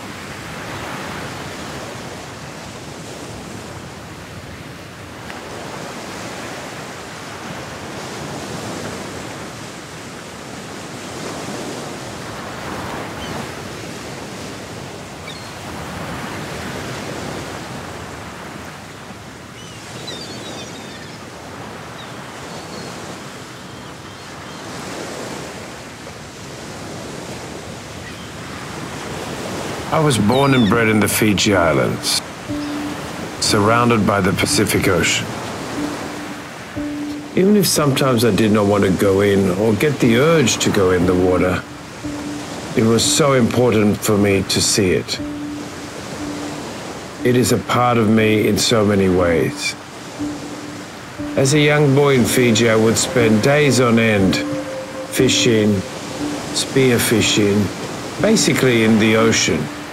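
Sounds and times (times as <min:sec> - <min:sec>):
ocean waves washing: 0:00.0 - 0:59.9
faint chirps: 0:32.5 - 0:33.4.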